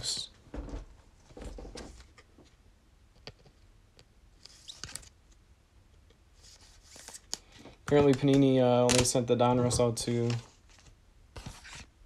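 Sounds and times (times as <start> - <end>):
cards rustling: 6.4 - 11.9.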